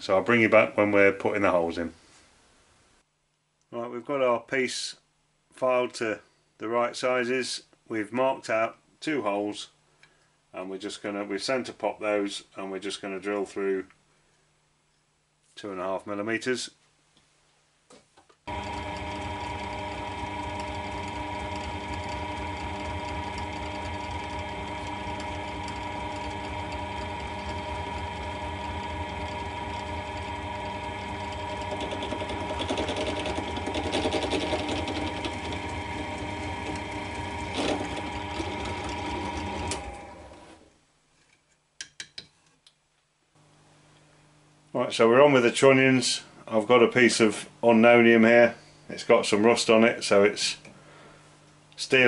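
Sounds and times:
drill bit cutting steel plate: 18.5s - 39.9s
drill motor humming: 18.5s - 40.6s.

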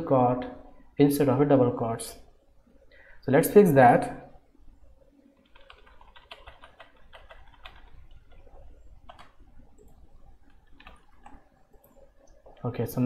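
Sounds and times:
typing on computer keyboard: 5.4s - 12.6s.

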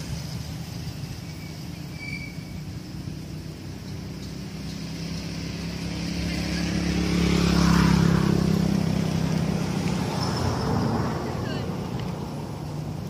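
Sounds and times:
vehicle engine passing by: 0.0s - 13.0s.

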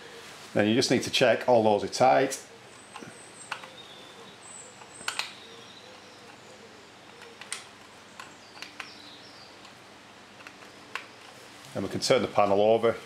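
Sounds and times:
screwdriver clicking on screws: 2.9s - 3.8s, 4.7s - 6.4s, 7.1s - 9.0s, 9.6s - 11.4s.

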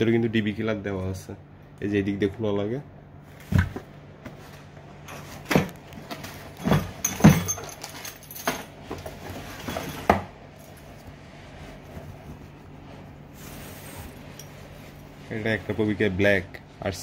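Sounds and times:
cardboard knocks and thumps: 3.4s - 4.4s.

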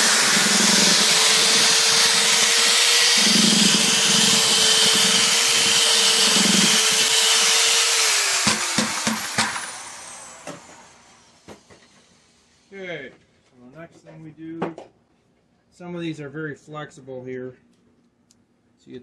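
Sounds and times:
drill paddle mixer whining: 0.0s - 12.9s
sharp knocks: 8.4s - 9.6s.

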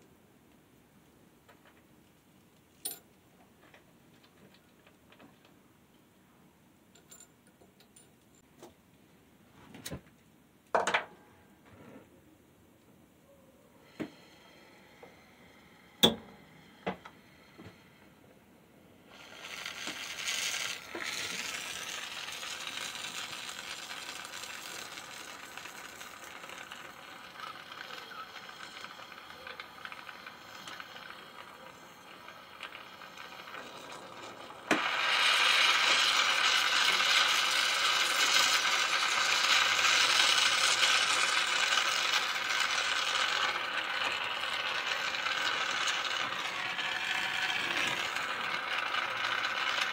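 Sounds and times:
gas torch hissing: 19.0s - 49.9s.

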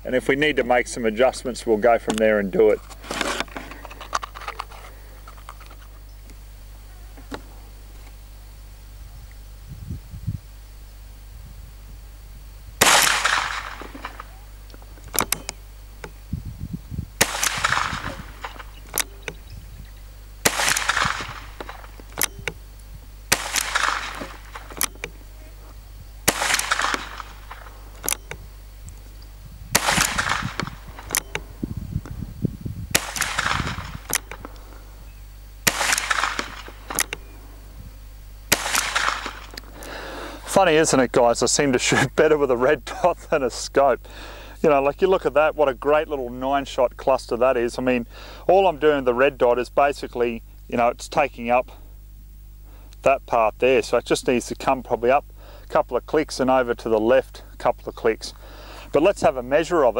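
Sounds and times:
rifle shots with echo: 12.8s - 16.1s, 17.2s - 19.4s, 20.4s - 28.6s, 29.7s - 31.6s, 32.9s - 35.0s, 35.6s - 37.7s, 38.5s - 39.7s
light gun mechanism clicks: 12.8s - 16.2s, 17.2s - 19.5s, 20.5s - 25.3s, 26.2s - 31.6s, 33.0s - 34.8s, 35.7s - 37.4s.

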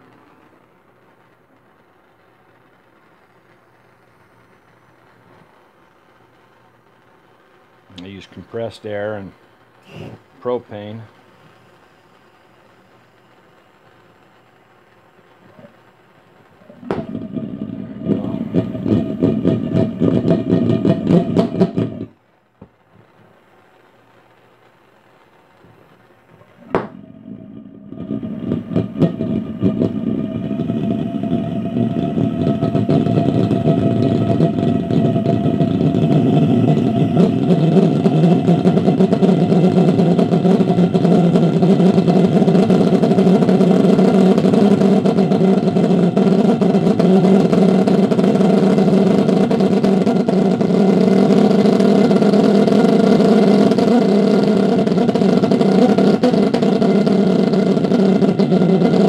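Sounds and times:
pulse jet engine drone: 16.5s - 22.2s, 26.6s - 59.0s
pulse jet popping: 16.5s - 22.2s, 26.4s - 59.0s.

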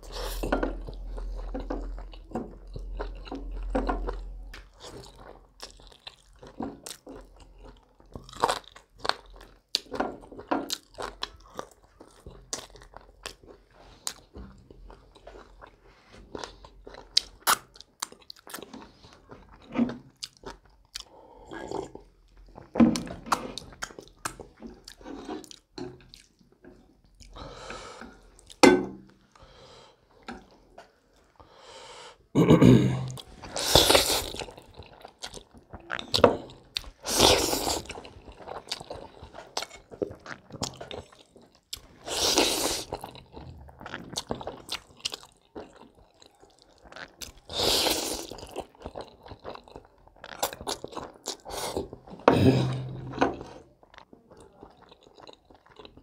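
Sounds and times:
wet chewing and mouth clicks: 0.0s - 29.4s, 33.1s - 52.3s, 53.0s - 56.0s
loud noodle slurps: 42.0s - 43.0s.

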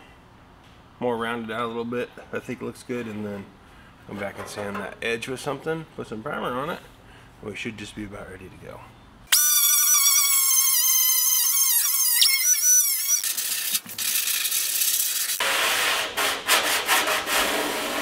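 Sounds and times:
grinder whining: 9.3s - 15.4s.

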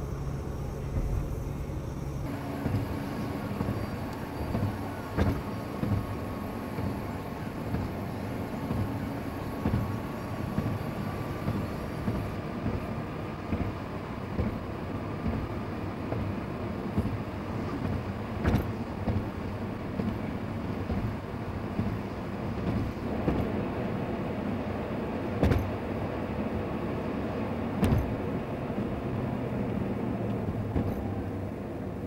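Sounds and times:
car road and engine noise: 0.0s - 32.0s
tyres thumping over bumps: 2.2s - 23.6s, 27.8s - 28.3s, 30.3s - 31.2s.

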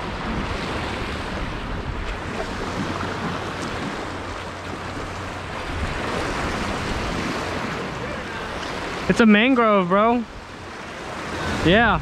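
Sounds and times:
wind rumbling on microphone: 0.0s - 9.0s, 10.3s - 12.0s
sea water sloshing against rocks: 0.0s - 9.2s.

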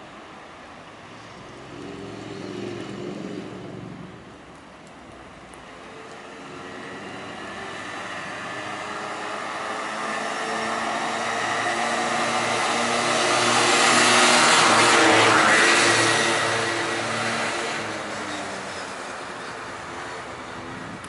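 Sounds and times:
vehicle passing close by: 1.4s - 4.3s, 6.2s - 18.2s.

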